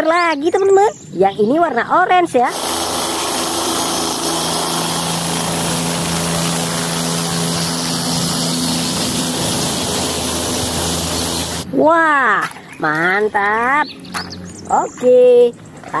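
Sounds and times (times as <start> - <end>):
helicopter hovering: 2.4 - 11.8.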